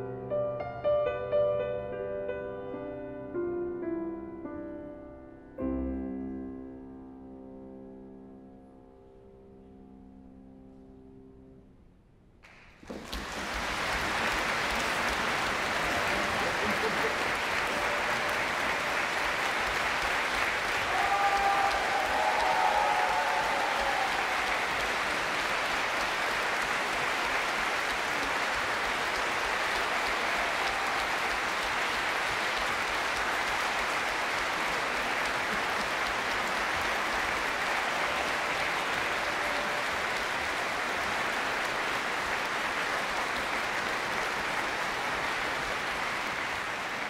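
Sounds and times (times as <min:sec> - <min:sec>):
audience applauding: 0:12.4 - 0:47.0.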